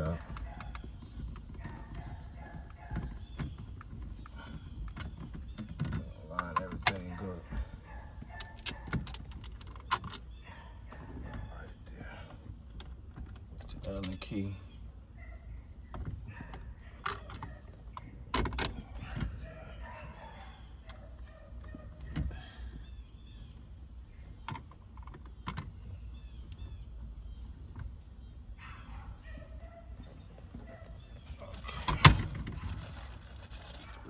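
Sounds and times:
birds chirping faintly: 0:00.0 - 0:34.0
tools clicking and knocking: 0:08.3 - 0:10.3.

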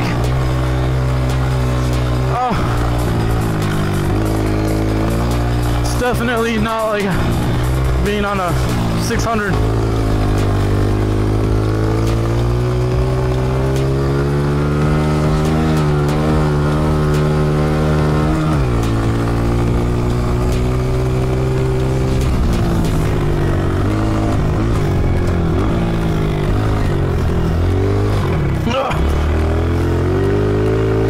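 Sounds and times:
motorcycle engine revving: 0:00.0 - 0:31.0.

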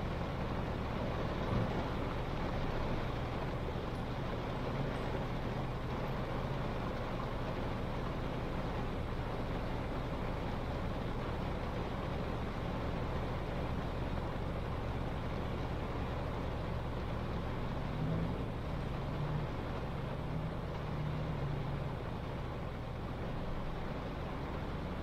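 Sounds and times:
low engine and road hum: 0:00.0 - 0:25.0
rain hissing: 0:00.0 - 0:25.0
wet-road tyre noise: 0:00.0 - 0:25.0.

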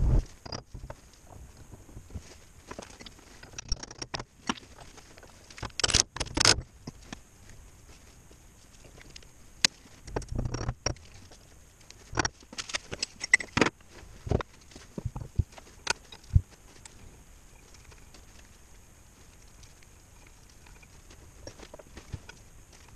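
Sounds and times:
sharp clicks: 0:05.6 - 0:06.6.

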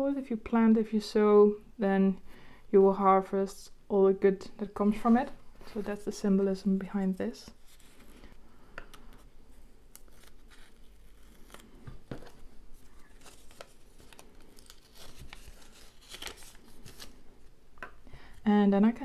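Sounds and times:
paper and tape rustling: 0:07.4 - 0:08.4, 0:09.9 - 0:17.2.

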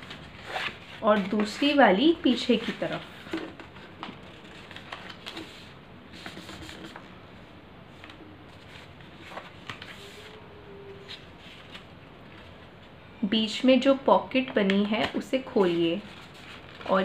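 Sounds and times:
paper rustling and crackling: 0:00.0 - 0:07.1, 0:08.0 - 0:10.4, 0:11.0 - 0:12.7, 0:14.8 - 0:17.0.

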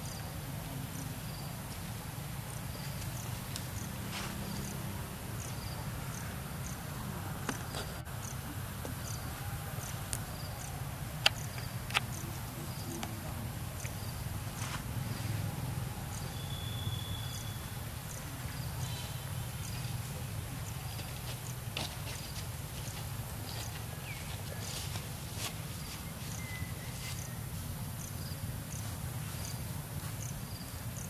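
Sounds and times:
insects chirping: 0:00.0 - 0:31.0
high whistle-like tone: 0:16.3 - 0:17.7.

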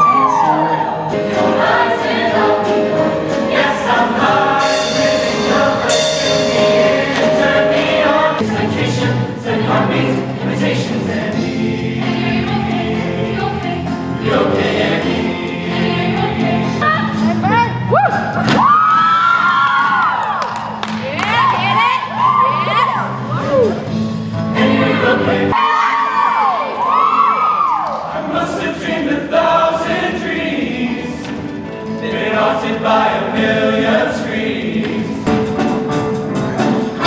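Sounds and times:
mixed choir singing: 0:00.0 - 0:17.3, 0:23.9 - 0:35.9.

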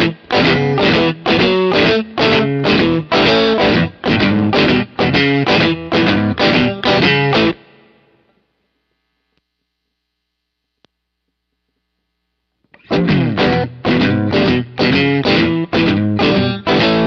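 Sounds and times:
overdriven electric guitar riff: 0:00.0 - 0:08.3, 0:12.7 - 0:17.0.

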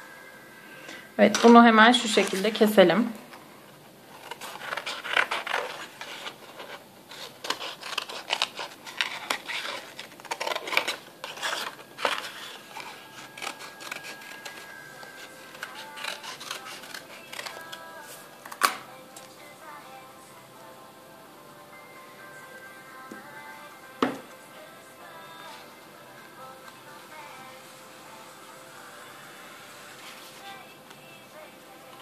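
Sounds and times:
soft background music: 0:00.0 - 0:32.0
scissors snipping card: 0:07.4 - 0:17.9.

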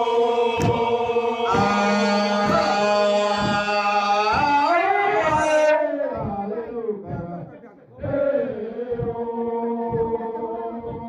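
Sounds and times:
low drum beats: 0:00.0 - 0:11.0
men chanting in long notes: 0:00.0 - 0:11.0.

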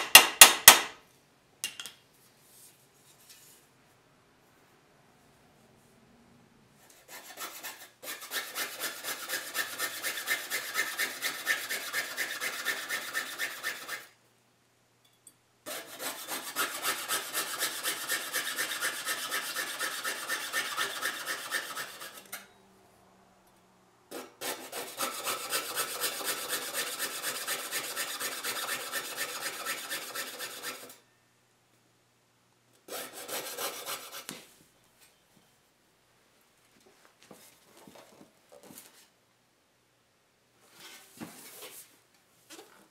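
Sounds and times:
hand saw cutting metal sheet: 0:06.9 - 0:14.1, 0:15.7 - 0:22.4, 0:24.1 - 0:31.0, 0:32.9 - 0:34.3.

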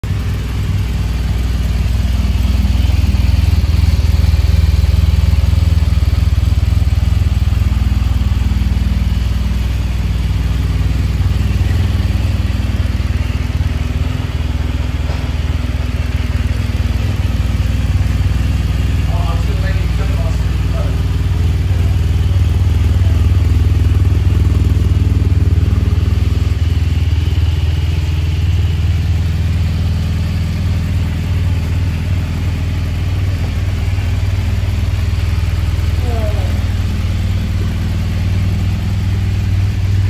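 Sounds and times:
motorcycle engine idling: 0:00.0 - 0:40.0.

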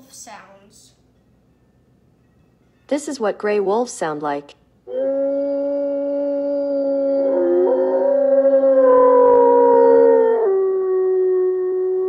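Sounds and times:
wolves howling: 0:04.9 - 0:12.0.

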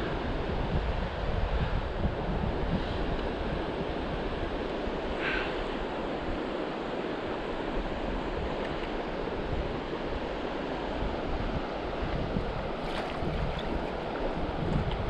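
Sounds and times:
stream rushing over rocks: 0:03.2 - 0:15.0.

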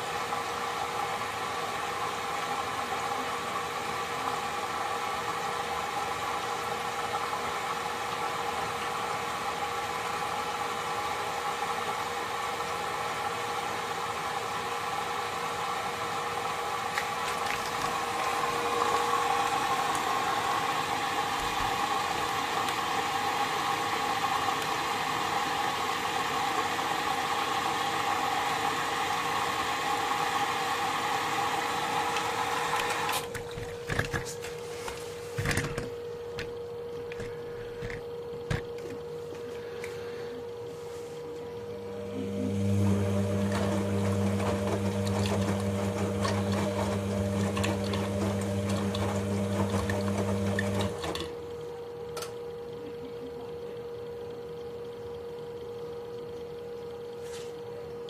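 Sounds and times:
washing machine drum whine: 0:00.0 - 0:58.0.

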